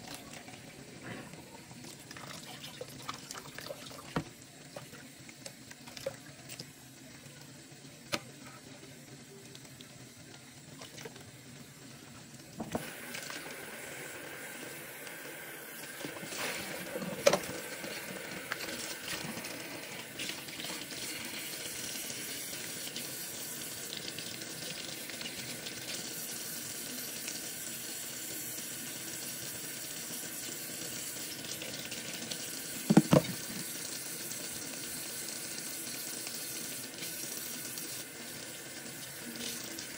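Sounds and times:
tap running into steel sink: 12.6 - 12.9, 32.8 - 33.8.

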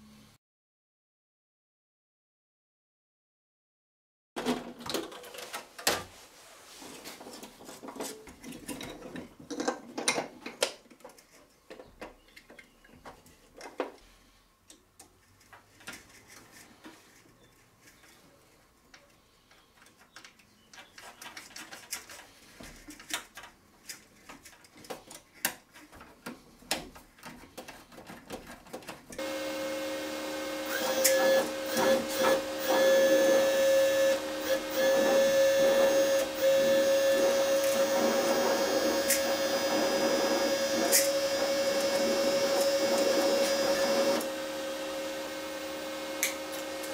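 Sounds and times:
clicks and knocks of handling: 7.2 - 14.0, 14.7 - 18.3, 18.9 - 29.2
welder mechanical whir: 29.2 - 46.9.

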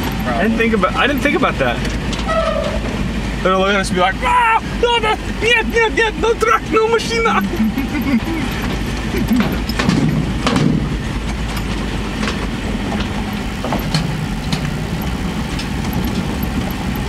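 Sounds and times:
truck engine running: 0.0 - 17.0
tyres clunking over metal joints: 8.4 - 14.1.

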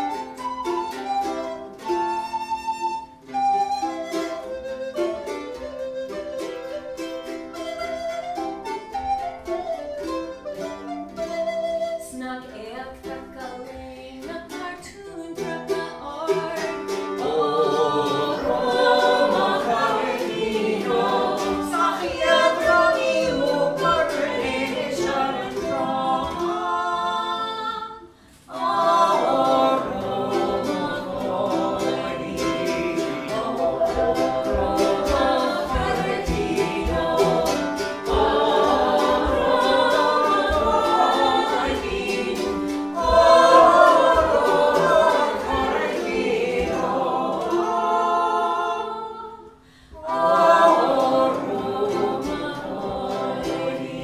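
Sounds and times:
strummed mandolin: 0.0 - 49.2, 49.9 - 54.0
man and woman singing: 12.1 - 54.0.

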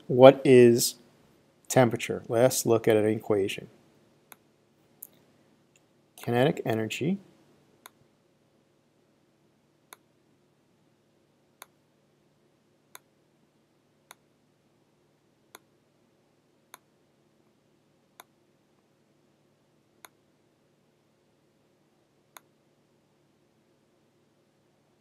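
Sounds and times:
faint hum: 0.0 - 25.0.

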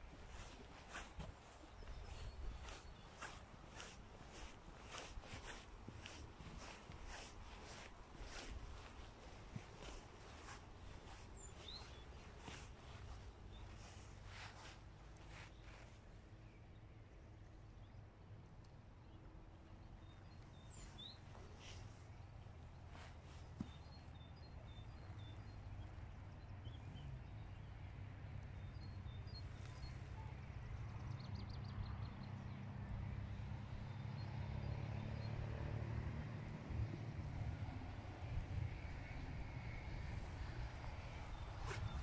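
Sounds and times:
small bird chirps: 0.3 - 15.9, 20.0 - 21.9.

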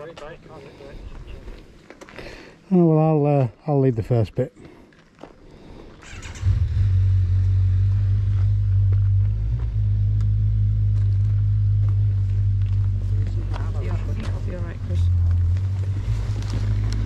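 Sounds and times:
motorcycle engine starting and idling: 6.0 - 17.0.

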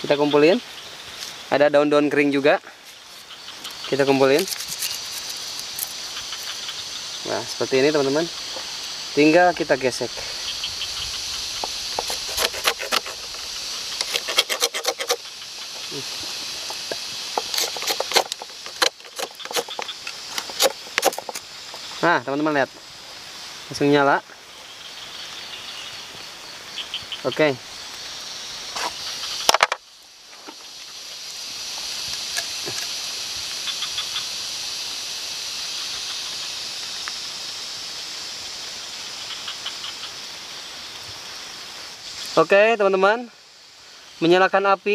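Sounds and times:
fire burning with steady hiss: 0.0 - 44.9
small crackles of fire: 0.6 - 1.6, 2.4 - 7.7, 22.7 - 42.5
fire starter scraping strokes: 4.0 - 6.6, 11.4 - 21.9.

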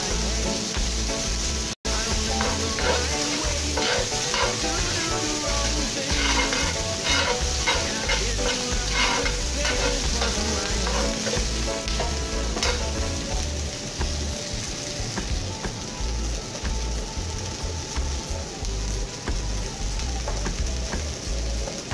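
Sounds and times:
onions sizzling in oil: 0.0 - 21.9
utensil scraping a pan: 2.3 - 13.3.

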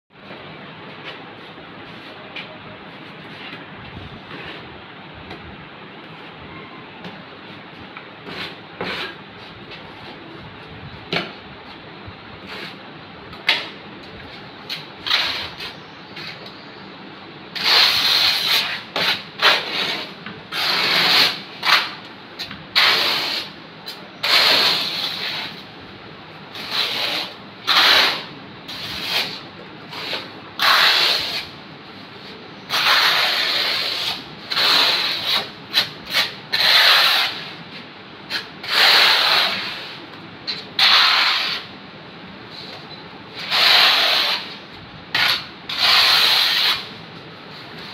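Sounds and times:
trowel scraping mortar on tile: 8.2 - 9.2, 14.8 - 16.5, 17.6 - 22.0, 22.7 - 23.6, 24.2 - 25.6, 26.5 - 31.6, 32.7 - 37.6, 38.3 - 41.7, 43.4 - 46.9.

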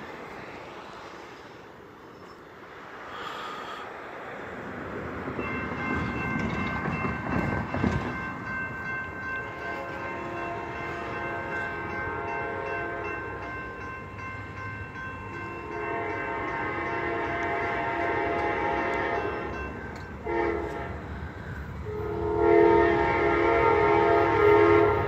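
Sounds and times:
low train rumble: 0.0 - 25.0
train air horn chord: 9.5 - 13.2, 15.6 - 19.6, 20.2 - 21.1, 21.8 - 25.0.

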